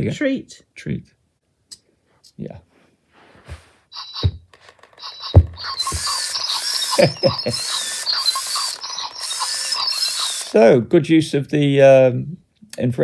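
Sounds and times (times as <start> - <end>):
toy crunching with electronic warbles: 3.9 - 10.6.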